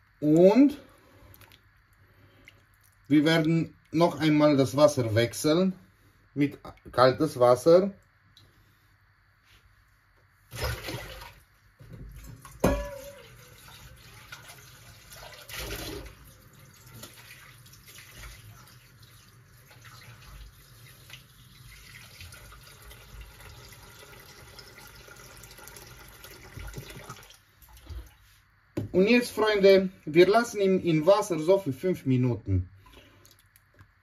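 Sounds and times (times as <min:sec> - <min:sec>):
tap water filling a metal bowl: 0:10.6 - 0:28.0
metal bowl clanking: 0:12.6 - 0:13.5.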